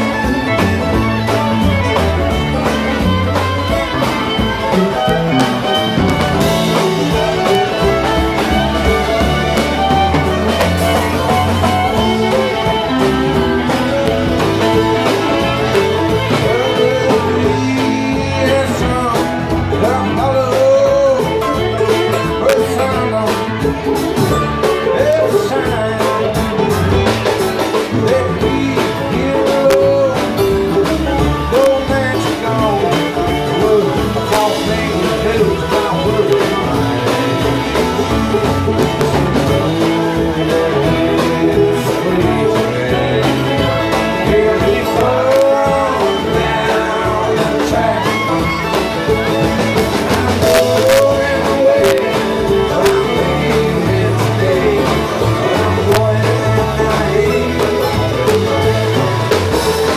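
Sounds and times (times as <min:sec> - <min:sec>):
bluegrass band playing: 0:00.0 - 0:59.9.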